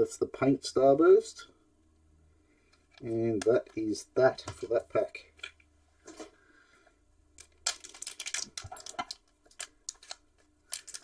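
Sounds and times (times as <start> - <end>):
foil wrapper crinkling: 7.4 - 11.0.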